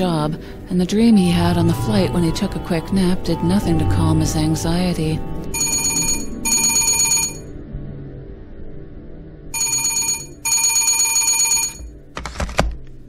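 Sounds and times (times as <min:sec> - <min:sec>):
soft background music: 0:00.0 - 0:13.0
telephone ringing: 0:05.5 - 0:07.5, 0:09.6 - 0:12.0.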